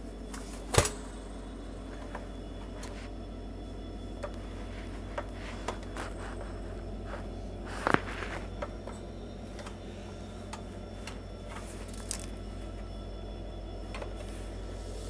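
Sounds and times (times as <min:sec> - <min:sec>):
heater clatter: 0:00.0 - 0:15.0
steady low hum: 0:00.0 - 0:15.0
plastic heater clicks and knocks: 0:00.3 - 0:01.1.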